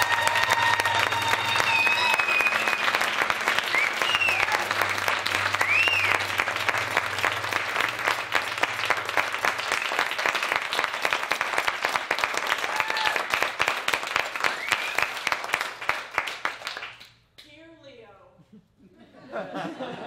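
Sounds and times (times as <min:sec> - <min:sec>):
audience cheering: 0:00.0 - 0:15.6
audience applauding: 0:00.0 - 0:17.2.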